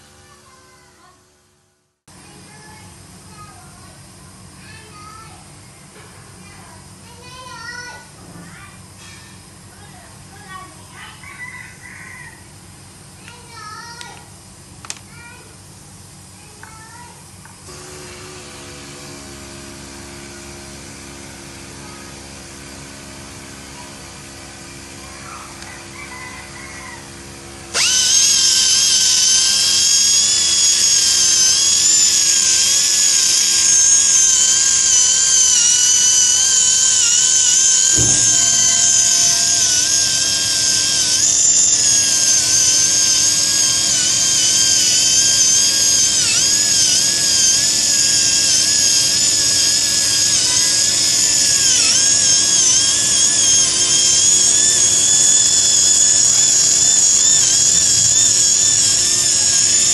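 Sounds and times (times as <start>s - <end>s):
polishing grinder whine: 17.7s - 59.9s.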